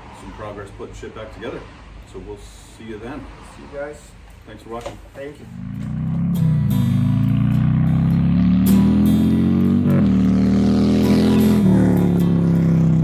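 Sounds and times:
engine accelerating through gears: 5.5s - 13.0s
guitar music: 5.6s - 13.0s.

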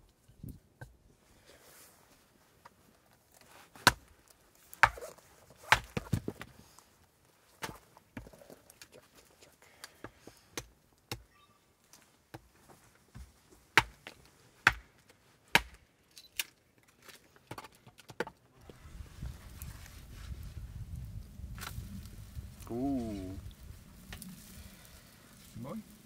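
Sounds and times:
hatchet chopping wood: 3.8s - 4.1s, 4.7s - 6.4s, 10.0s - 11.3s, 13.8s - 15.8s.

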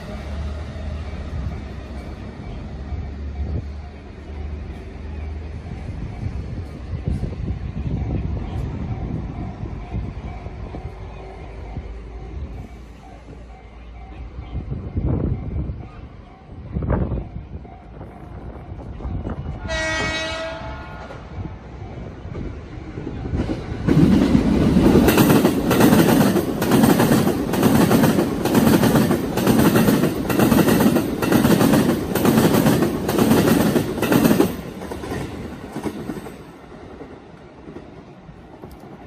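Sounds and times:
train horn toot: 19.6s - 21.3s
train wheels clacking over rail joints: 23.3s - 38.0s.

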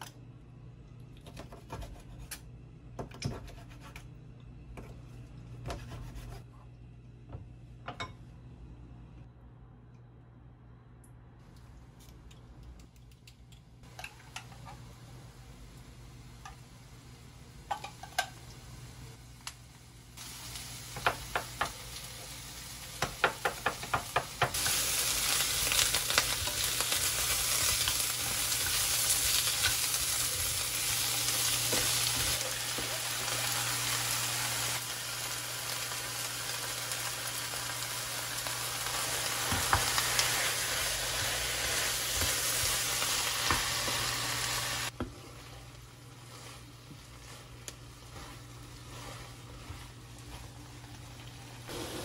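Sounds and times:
food sizzling in a frying pan: 19.9s - 52.0s.

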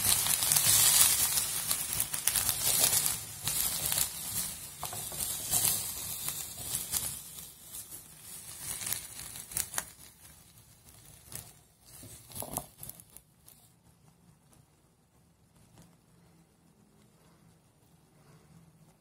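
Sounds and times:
spatula scraping chickpeas in pan: 0.0s - 13.6s.

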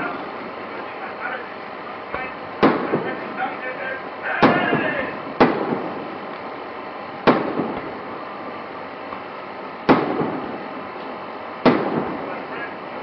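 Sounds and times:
firework shells bursting: 2.1s - 3.3s, 4.4s - 6.5s, 7.2s - 8.1s, 9.1s - 12.5s
echo of bangs: 2.2s - 3.3s, 4.4s - 6.1s, 7.2s - 8.0s, 9.9s - 10.6s, 11.6s - 12.4s.

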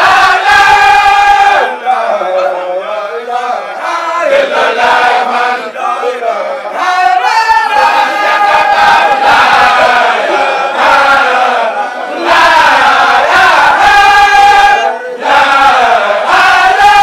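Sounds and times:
group of voices chanting: 0.0s - 17.0s.

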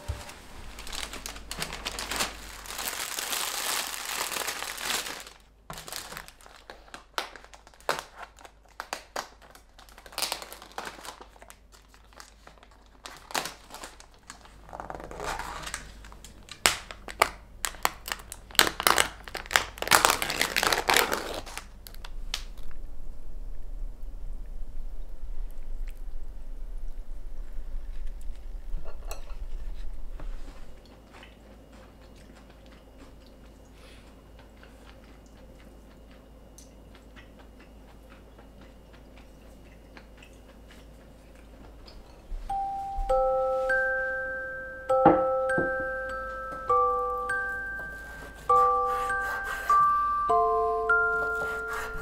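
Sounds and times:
plastic crinkling and rustling: 0.0s - 22.8s.

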